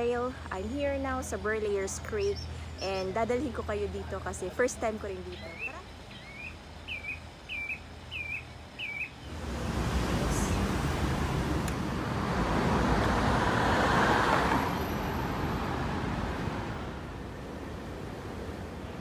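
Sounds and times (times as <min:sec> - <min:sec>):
road traffic noise: 0:00.0 - 0:19.0
bird calls: 0:05.2 - 0:09.4
vehicle passing: 0:09.2 - 0:19.0.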